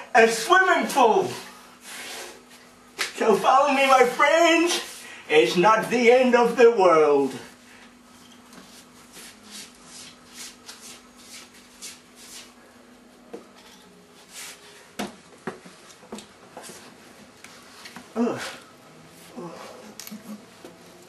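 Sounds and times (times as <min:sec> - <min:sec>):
shuffling footsteps: 0:14.2 - 0:18.1.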